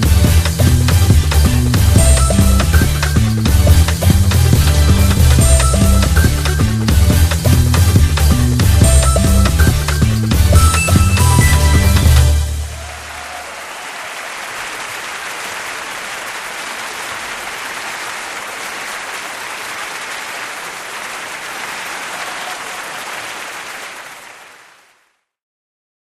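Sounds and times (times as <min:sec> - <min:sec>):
crowd applauding: 0:08.8 - 0:25.2.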